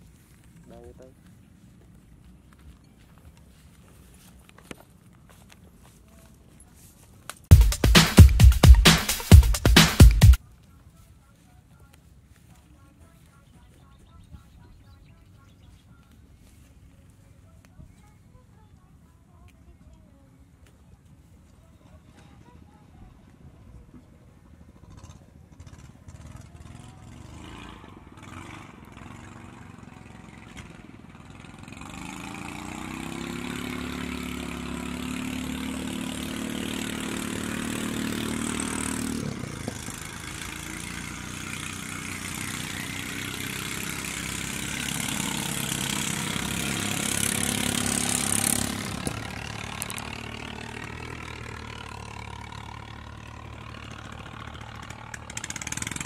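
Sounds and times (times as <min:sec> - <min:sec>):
motor engine running: 0:24.0 - 0:56.0.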